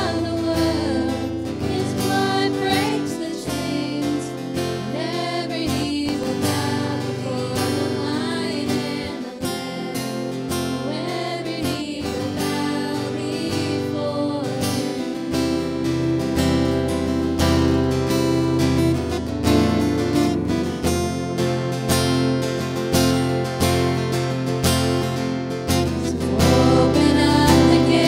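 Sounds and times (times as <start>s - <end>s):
worship band playing: 0.0s - 14.5s
person singing: 0.0s - 15.6s, 26.0s - 28.0s
strummed acoustic guitar: 0.0s - 28.0s.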